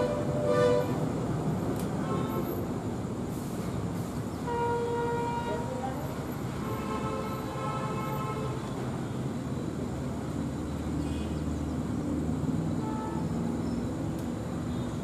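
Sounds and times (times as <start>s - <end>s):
diesel locomotive engine rumbling: 0.0s - 15.0s.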